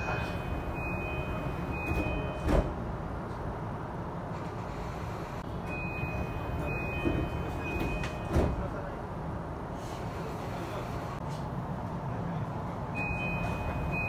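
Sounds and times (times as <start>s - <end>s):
train door chime: 0.0s - 2.8s, 5.6s - 8.9s, 13.0s - 14.0s
train doors closing thud: 0.0s - 2.9s, 5.7s - 8.9s
low hum of train: 0.0s - 14.0s.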